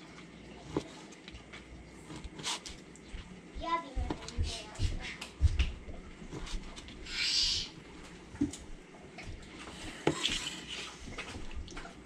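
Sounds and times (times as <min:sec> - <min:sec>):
knife scraping: 0:02.0 - 0:02.8, 0:09.9 - 0:11.0.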